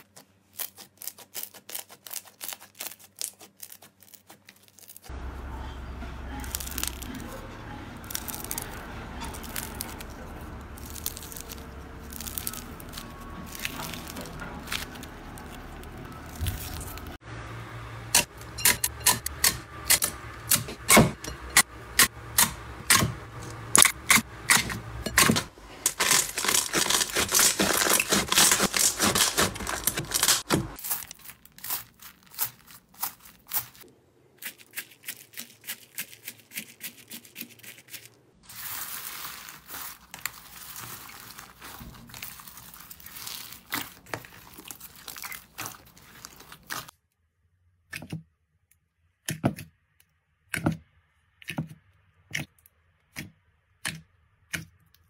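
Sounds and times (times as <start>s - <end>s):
slime and foam beads crackling: 0.0s - 5.1s, 6.4s - 17.2s, 25.7s - 46.9s.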